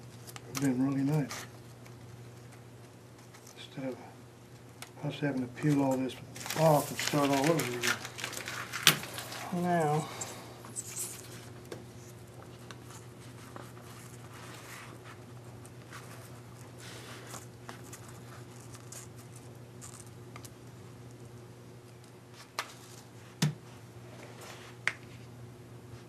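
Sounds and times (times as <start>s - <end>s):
steady low hum: 0.0s - 26.0s
paper rustling: 5.6s - 20.1s.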